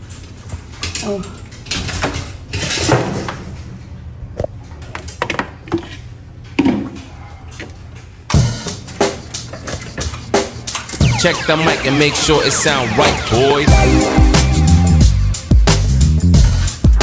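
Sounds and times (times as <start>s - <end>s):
drum kit: 8.3s - 17.0s
steady bass line: 11.0s - 16.8s.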